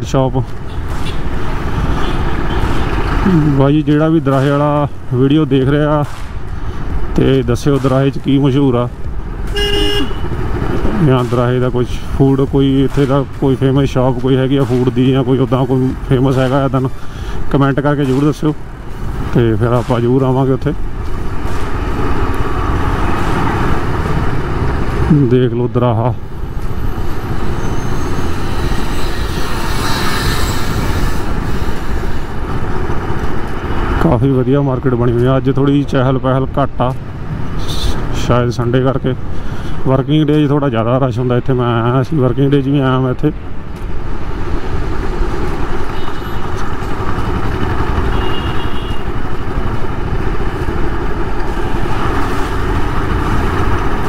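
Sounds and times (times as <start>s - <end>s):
road noise: 0.0s - 54.0s
motorcycle running: 44.1s - 54.0s.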